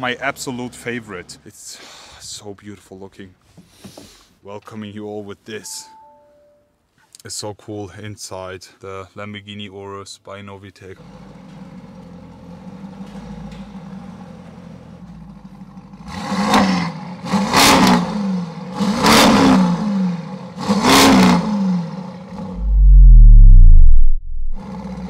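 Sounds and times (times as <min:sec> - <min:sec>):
car engine idling and revving: 0:11.0 - 0:25.0
loud deep boom: 0:22.5 - 0:24.6.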